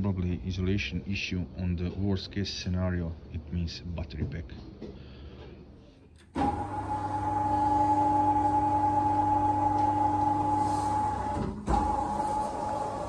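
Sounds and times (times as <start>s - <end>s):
hydraulic pump motor whining: 6.2s - 13.0s.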